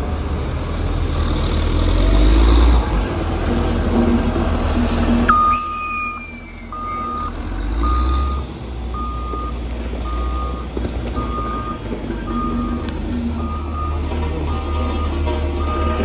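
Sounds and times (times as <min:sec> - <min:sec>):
diesel engine rumble: 0:00.0 - 0:16.0
high falling squeal: 0:05.3 - 0:07.2
backup alarm beeping: 0:05.3 - 0:16.0.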